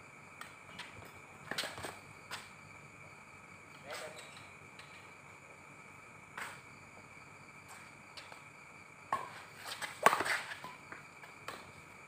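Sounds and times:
racket hitting shuttlecock: 9.1s - 10.8s.

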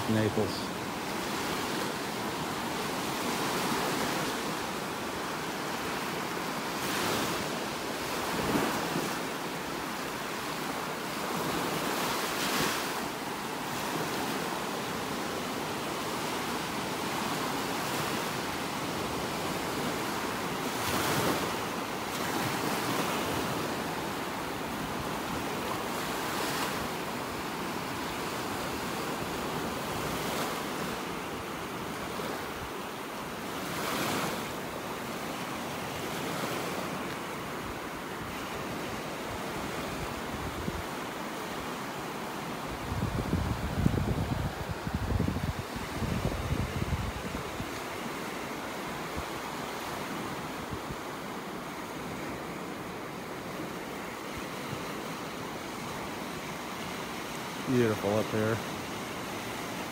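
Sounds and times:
surf washing onto beach: 0.0s - 59.9s
wind buffeting microphone: 42.8s - 47.7s.

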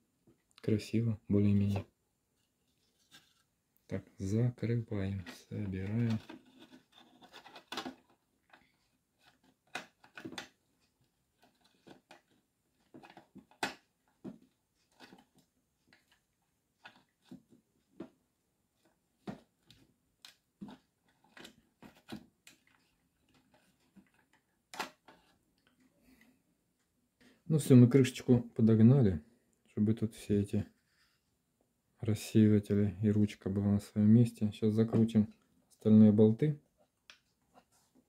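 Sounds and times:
plastic clicks and knocks: 9.3s - 10.6s.

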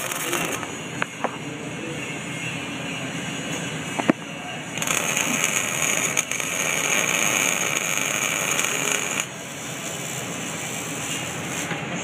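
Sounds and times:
welding arc crackling and hissing: 0.0s - 1.3s, 4.8s - 11.8s.

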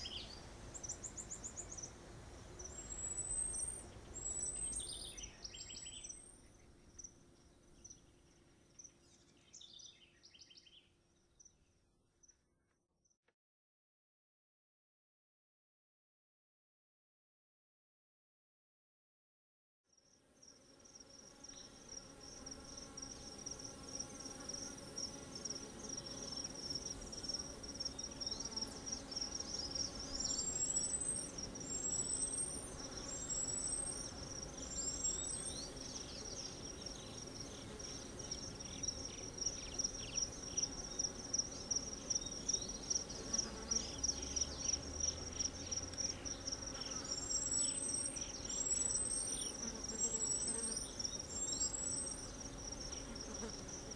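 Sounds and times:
insects trilling: 20.5s - 53.9s.

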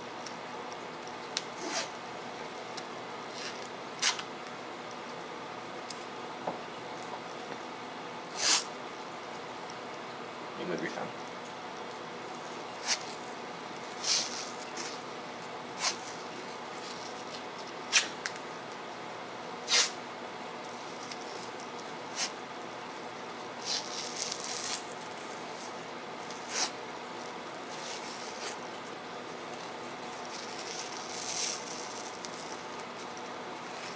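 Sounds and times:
athletic tape ripping: 1.5s - 1.9s, 3.3s - 4.3s, 19.7s - 20.0s, 23.6s - 25.1s, 30.1s - 33.9s.

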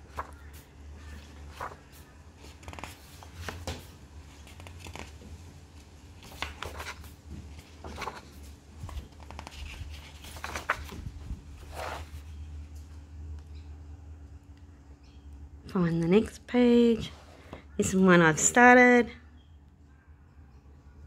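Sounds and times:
paper pages turning: 0.0s - 12.5s.

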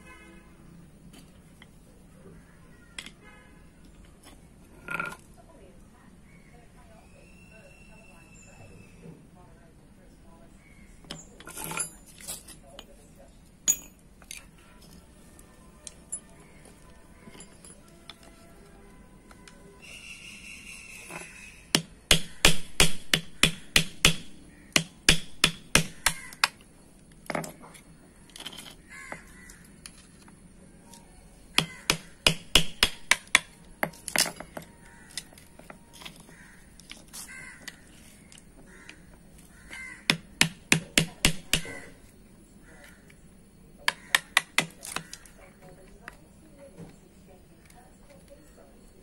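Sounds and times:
hammer striking metal punch: 21.7s - 26.5s.

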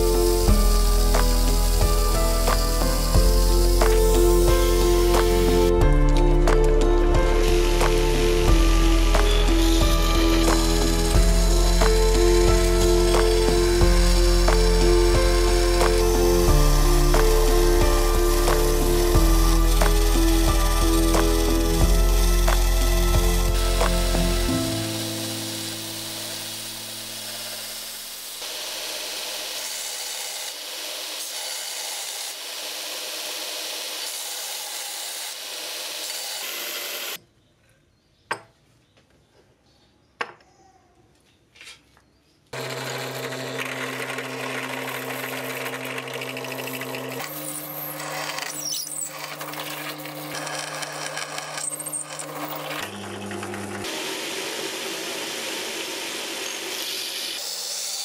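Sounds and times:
belt grinder shaping wood: 0.0s - 37.2s, 42.6s - 58.0s
steady motor hum: 7.3s - 29.3s, 42.6s - 57.3s.

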